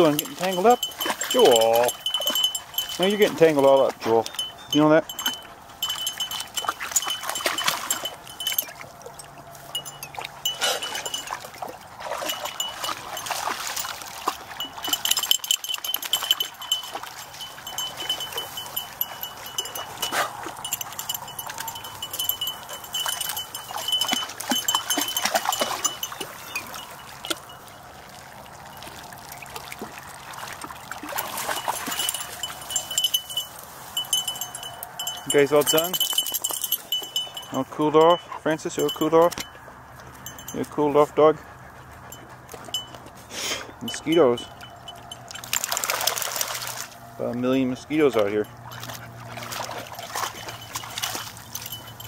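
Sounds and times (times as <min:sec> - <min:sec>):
light metallic jingling: 0:00.0 - 0:27.9, 0:31.0 - 0:52.0
dogs splashing in water: 0:00.0 - 0:52.0
rustling through reeds: 0:30.9 - 0:37.5.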